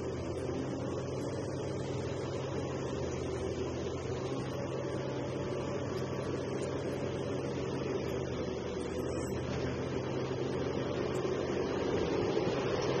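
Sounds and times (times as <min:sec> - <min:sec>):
excavator diesel engine droning: 0:00.0 - 0:13.0.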